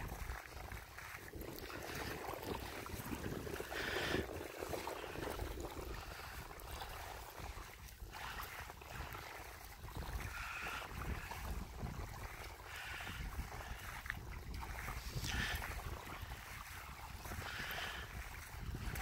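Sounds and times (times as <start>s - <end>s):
small waves lapping shore: 0.0s - 19.0s
wind rumble on microphone: 0.0s - 19.0s.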